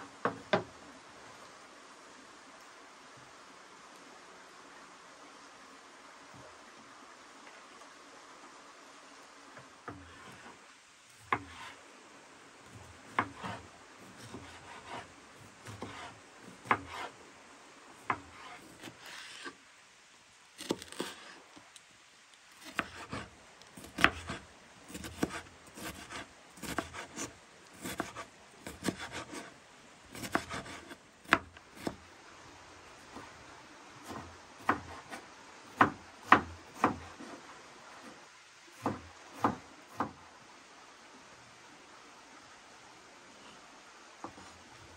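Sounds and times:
knife chopping on wooden board: 0:16.6 - 0:17.0, 0:22.6 - 0:29.5, 0:30.2 - 0:32.0, 0:34.1 - 0:35.0, 0:35.8 - 0:37.0, 0:38.8 - 0:40.2.

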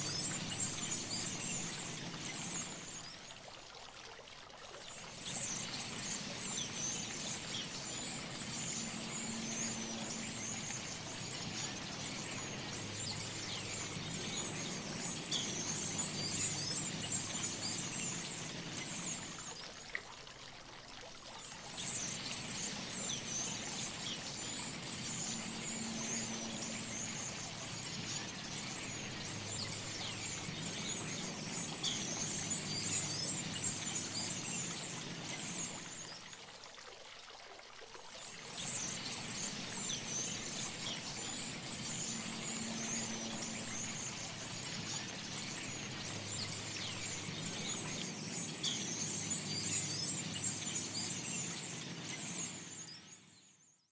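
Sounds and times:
running water: 0:00.0 - 0:53.3.

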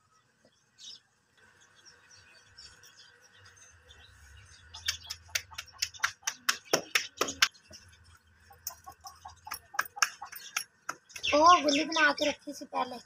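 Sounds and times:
hands slapping dough: 0:04.9 - 0:07.5.

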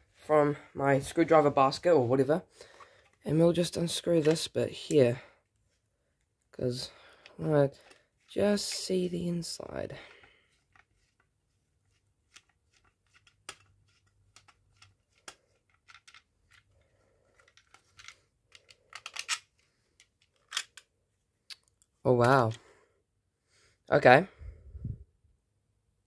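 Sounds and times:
screwdriver clicks and scrapes: 0:12.3 - 0:20.9.

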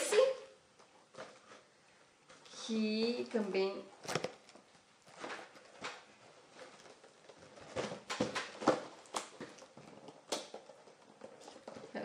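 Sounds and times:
gift packaging rustling: 0:04.0 - 0:12.0.

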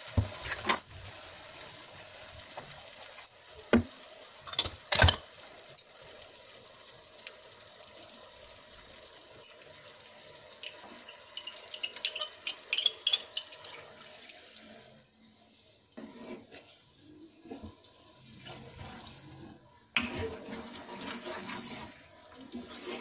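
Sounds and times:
vegetables sizzling in hot oil: 0:00.0 - 0:23.0
liquid pouring into pan: 0:08.0 - 0:15.1, 0:16.0 - 0:23.0
liquid spitting and crackling: 0:10.6 - 0:14.0.

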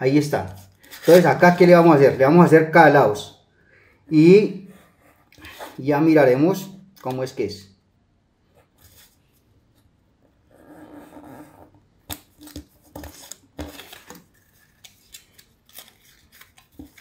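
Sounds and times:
paper rustling: 0:00.4 - 0:02.1, 0:12.1 - 0:17.0.

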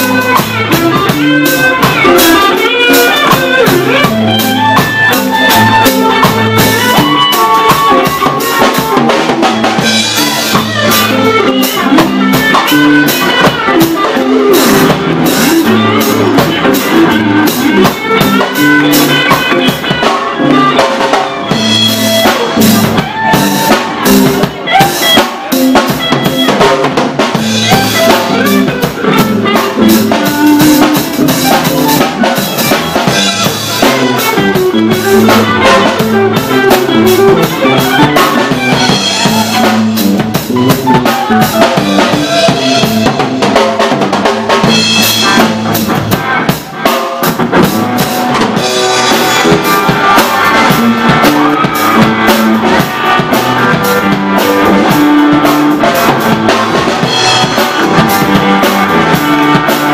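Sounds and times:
drum kit: 0:00.0 - 0:59.9
electric guitars: 0:00.0 - 0:59.9.

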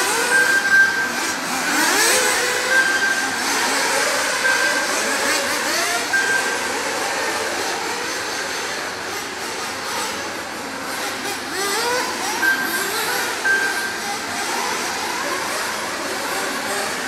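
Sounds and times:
electronic beep: 0:00.0 - 0:07.1, 0:12.2 - 0:14.8
rc car engines revving: 0:00.0 - 0:17.0.

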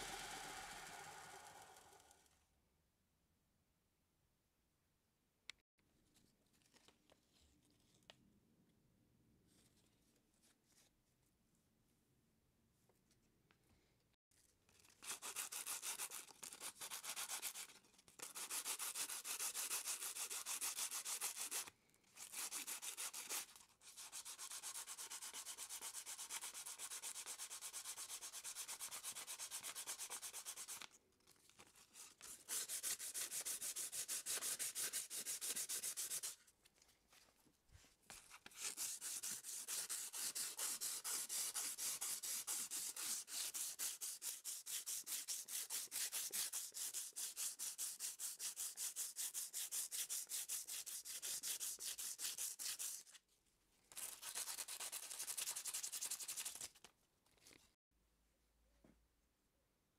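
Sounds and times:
sandpaper rasping on wood: 0:15.0 - 0:30.9, 0:32.3 - 0:36.4, 0:38.6 - 0:53.1.

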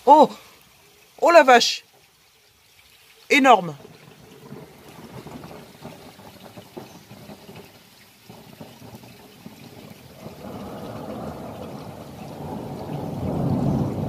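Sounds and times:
rain pattering and dripping: 0:00.0 - 0:14.0
low rumble of thunder: 0:03.8 - 0:14.0.

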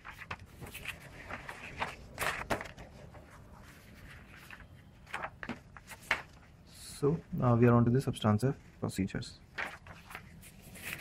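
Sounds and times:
notebook pages turning: 0:00.0 - 0:06.6, 0:09.5 - 0:11.0.

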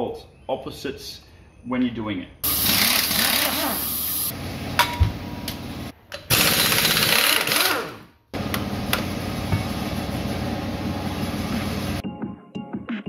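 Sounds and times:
impact wrench hammering: 0:06.2 - 0:09.8.

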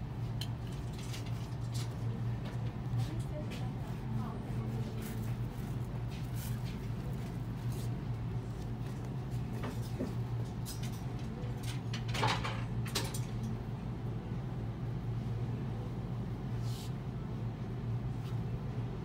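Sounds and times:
low room hum: 0:00.0 - 0:19.0.

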